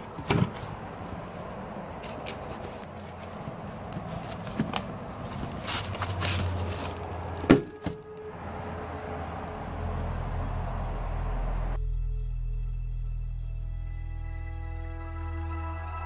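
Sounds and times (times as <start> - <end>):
cardboard boxes rustling and knocking: 0.0 - 8.0.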